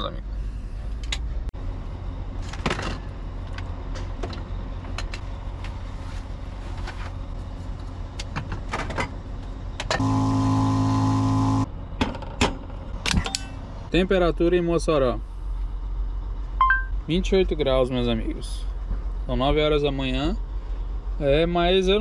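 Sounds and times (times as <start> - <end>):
motor vehicle humming: 0.2 - 13.9
loud steady tone: 9.9 - 11.7.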